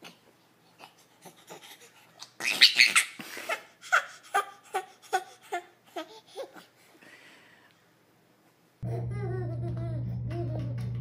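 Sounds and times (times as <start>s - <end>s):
baby laughing: 1.2s - 6.7s
baby squealing: 2.4s - 3.2s.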